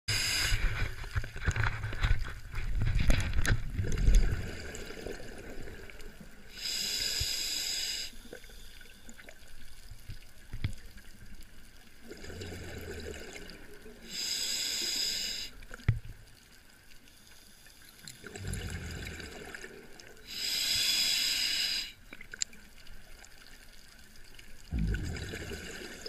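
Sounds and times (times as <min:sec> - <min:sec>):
regulator hissing inhale: 0:00.1 - 0:00.9, 0:06.5 - 0:09.1, 0:14.0 - 0:15.6, 0:20.2 - 0:22.1
exhaled bubbles crackling: 0:00.5 - 0:06.6, 0:12.0 - 0:14.2, 0:18.0 - 0:20.4, 0:24.2 - 0:26.0.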